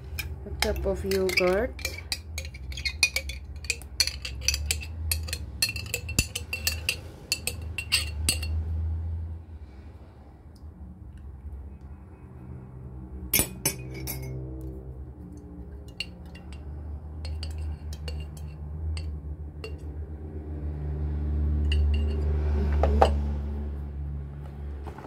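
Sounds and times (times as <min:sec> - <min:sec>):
spoon clinking against glass jar: 0:00.0 - 0:08.6, 0:15.8 - 0:19.9, 0:21.6 - 0:23.2.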